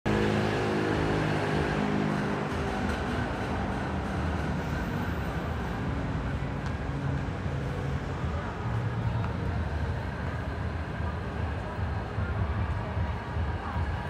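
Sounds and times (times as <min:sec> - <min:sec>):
city traffic rumble: 0:00.0 - 0:14.0.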